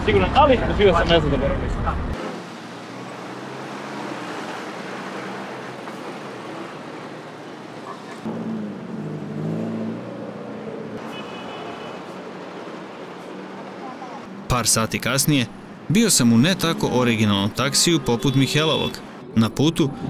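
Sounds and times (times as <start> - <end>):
road traffic rumble: 0.0 - 20.0
vehicle engine passing: 1.8 - 11.1.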